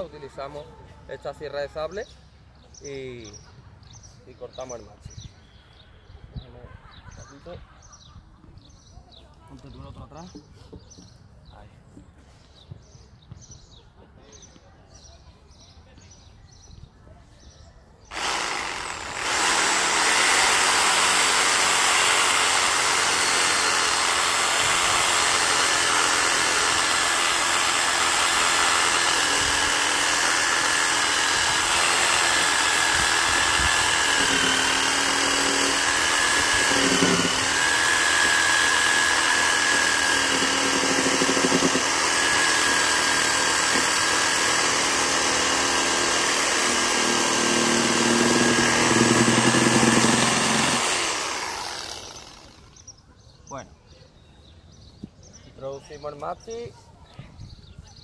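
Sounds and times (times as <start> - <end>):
reciprocating saw cutting wood: 18.1 - 52.9.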